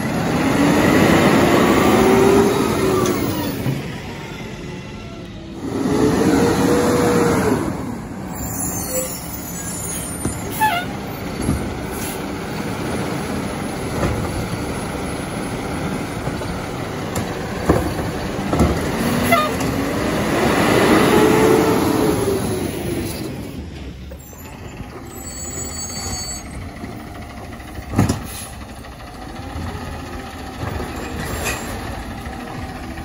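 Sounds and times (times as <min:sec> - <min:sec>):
garbage truck engine revving: 0:00.0 - 0:04.0, 0:05.5 - 0:08.6, 0:11.0 - 0:23.7.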